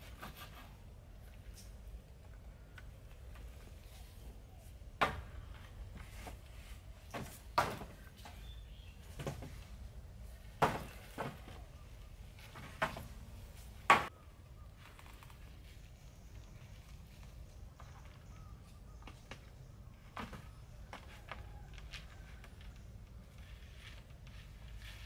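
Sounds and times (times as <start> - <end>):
wood chopping knocks: 7.1 - 8.0, 10.6 - 11.5, 13.9 - 14.1.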